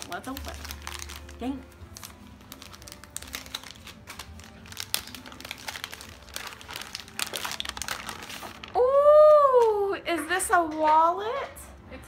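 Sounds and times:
paper crinkling and rustling: 0:00.0 - 0:09.0.

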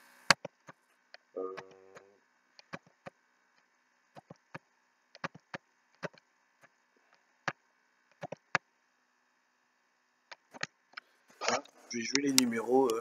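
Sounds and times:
computer mouse clicking: 0:00.3 - 0:00.8, 0:02.6 - 0:03.2, 0:04.2 - 0:06.2, 0:07.5 - 0:08.6, 0:10.3 - 0:11.1.

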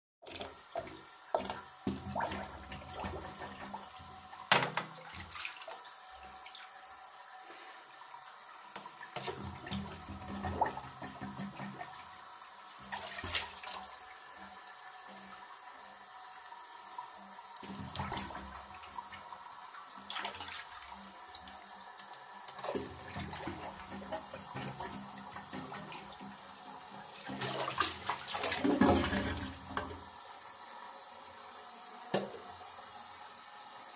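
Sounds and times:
plunger sloshing water in toilet: 0:00.2 - 0:06.6, 0:08.7 - 0:15.4, 0:17.6 - 0:19.4, 0:20.0 - 0:30.1.

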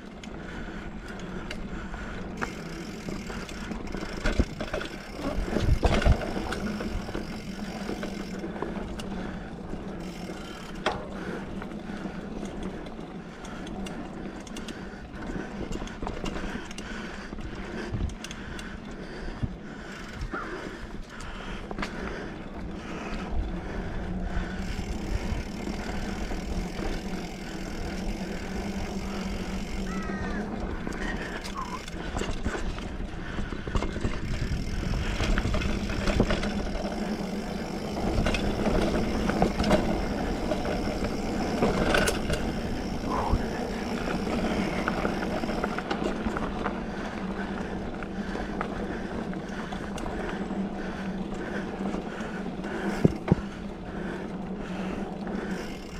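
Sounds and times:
bike tyres rolling on dirt: 0:00.0 - 0:55.9
bike clattering over bumps: 0:00.4 - 0:12.9, 0:24.1 - 0:55.9.

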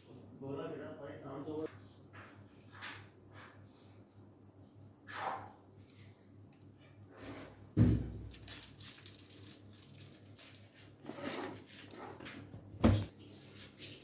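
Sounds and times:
soft rustling and handling noise: 0:08.3 - 0:14.0.

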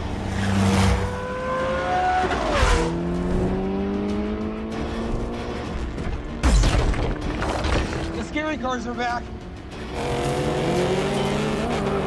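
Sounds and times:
rally car engine accelerating: 0:09.8 - 0:12.0.

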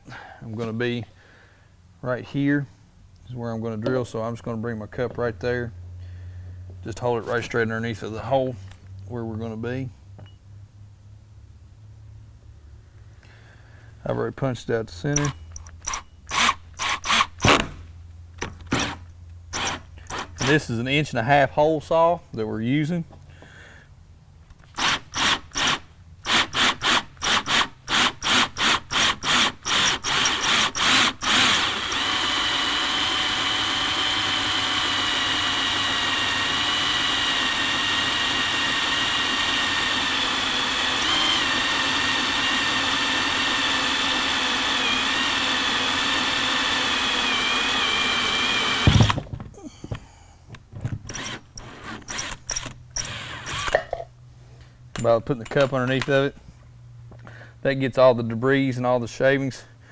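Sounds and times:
power drill cutting plastic: 0:15.2 - 0:17.8, 0:18.7 - 0:20.5, 0:24.7 - 0:49.2, 0:51.1 - 0:53.8.

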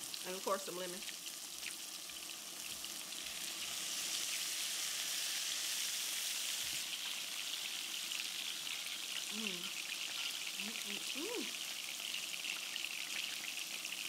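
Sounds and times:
fish sizzling on a grill plate: 0:00.0 - 0:14.0.

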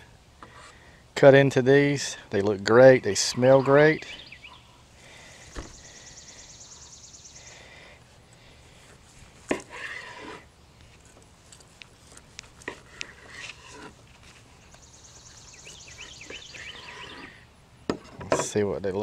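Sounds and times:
knife scrape: 0:09.4 - 0:10.5, 0:12.6 - 0:14.0.

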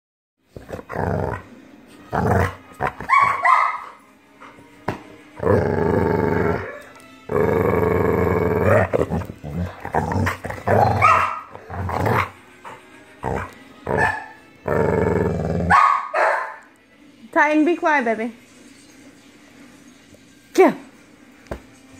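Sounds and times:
dog play-growling: 0:00.5 - 0:03.4, 0:04.0 - 0:15.8.

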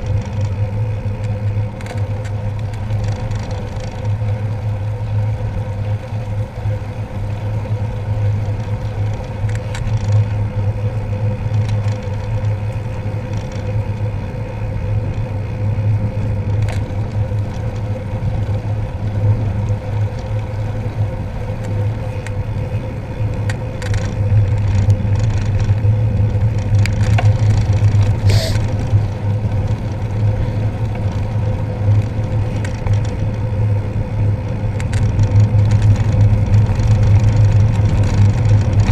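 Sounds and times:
wind and road rumble: 0:00.0 - 0:38.9.

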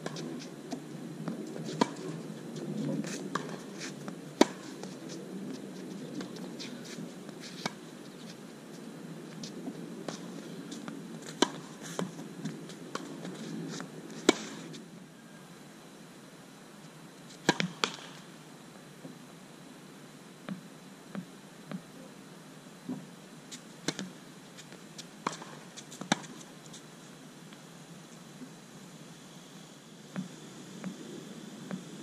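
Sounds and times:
faint low background noise: 0:00.0 - 0:32.0
tennis ball hit and bouncing: 0:11.3 - 0:12.1, 0:17.4 - 0:18.2.

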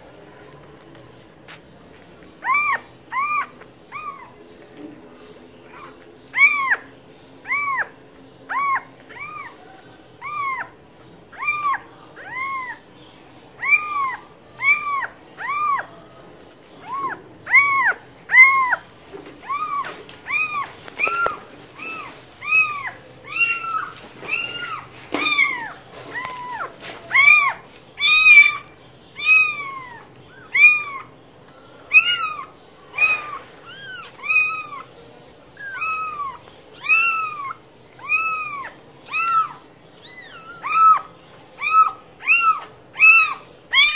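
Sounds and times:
cat meowing: 0:19.4 - 0:31.1, 0:31.9 - 0:34.9, 0:35.6 - 0:43.9.

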